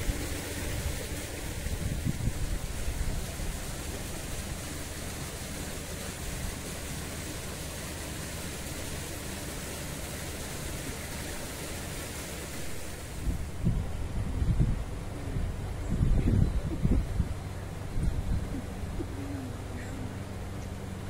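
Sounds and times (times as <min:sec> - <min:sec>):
wind on microphone: 0:00.0 - 0:03.9, 0:13.0 - 0:20.2.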